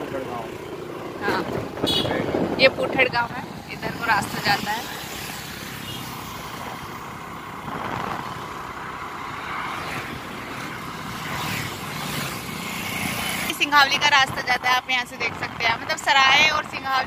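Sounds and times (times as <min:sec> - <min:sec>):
road noise from motorbike: 0:00.0 - 0:17.0
vehicles passing: 0:00.0 - 0:17.0
wind rush: 0:01.0 - 0:05.0, 0:07.5 - 0:12.4.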